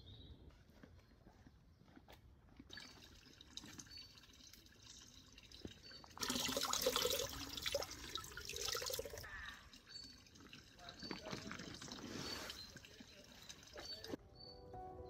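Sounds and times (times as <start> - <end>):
water splashing into a bottle: 5.5 - 14.2
faint bird chirps: 9.2 - 14.7.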